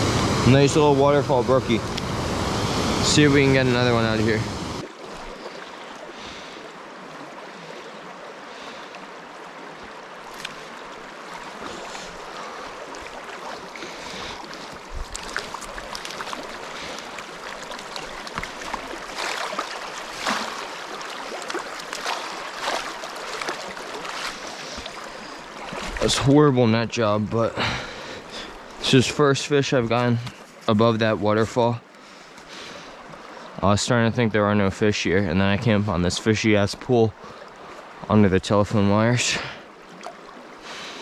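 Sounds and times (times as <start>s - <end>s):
stream water flowing: 0.0s - 41.0s
fish splashing at surface: 12.9s - 26.1s.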